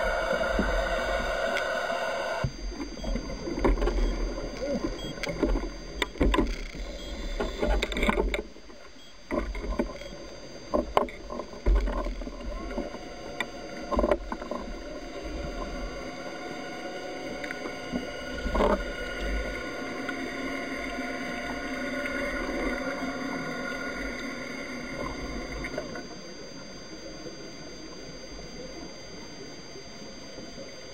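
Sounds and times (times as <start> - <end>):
knocks and clicks handling speargun: 5.2 - 6.8.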